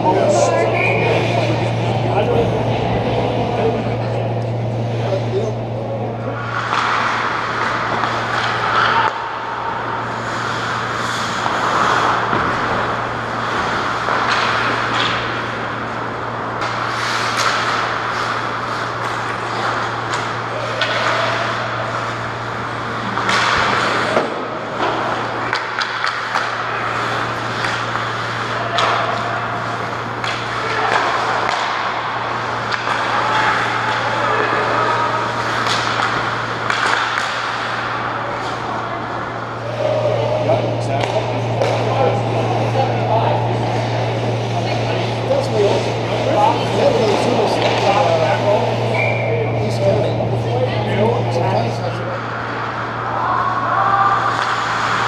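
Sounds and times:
steady low hum: 0.0s - 55.0s
skates scraping ice: 6.4s - 40.4s
hockey sticks and puck clacking: 6.4s - 42.7s, 45.4s - 49.3s, 52.2s - 55.0s.

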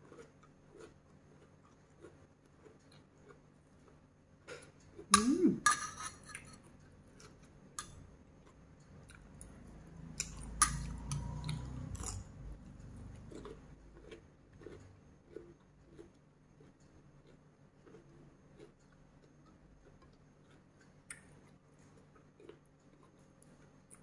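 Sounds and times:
wet chewing: 7.1s - 24.0s.

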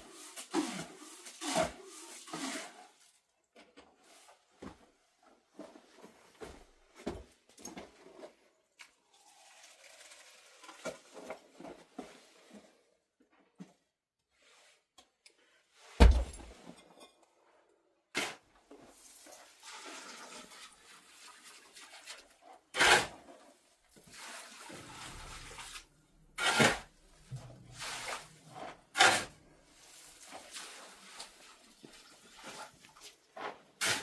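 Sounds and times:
wet scraping and sloshing: 18.3s - 34.0s.

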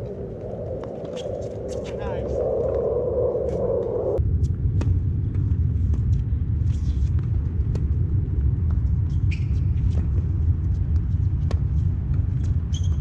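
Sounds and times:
loud steady low rumble: 0.0s - 9.1s.

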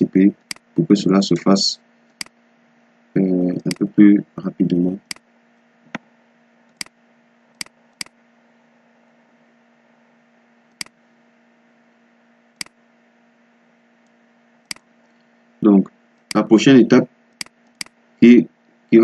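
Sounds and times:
faint steady hum and hiss: 0.0s - 19.0s
mouse buttons clicking: 3.6s - 3.9s, 5.0s - 5.2s.

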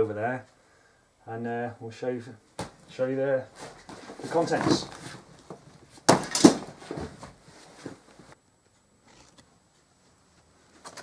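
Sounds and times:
rustling: 3.4s - 8.4s
handling thump and knocks: 3.6s - 8.0s.

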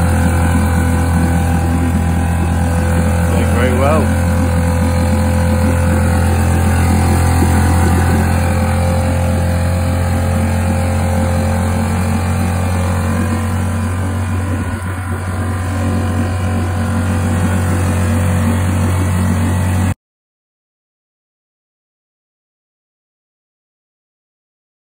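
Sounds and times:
outboard motor running: 0.0s - 20.0s.

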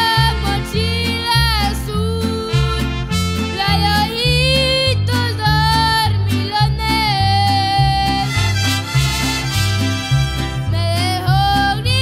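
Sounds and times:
bass guitar line: 0.0s - 12.0s
strummed guitars: 0.0s - 12.0s
violins playing melody: 8.2s - 10.8s.

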